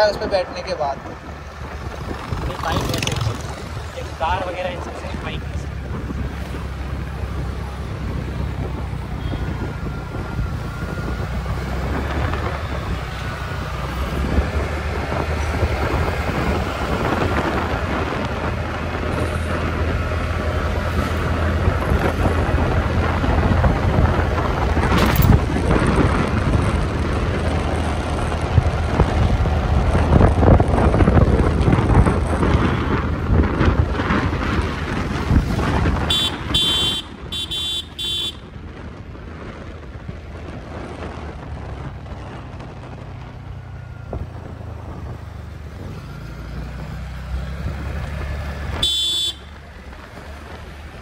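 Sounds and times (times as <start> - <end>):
street traffic: 0.0 - 51.0
wind buffeting microphone: 0.0 - 51.0
scooter engine: 42.9 - 51.0.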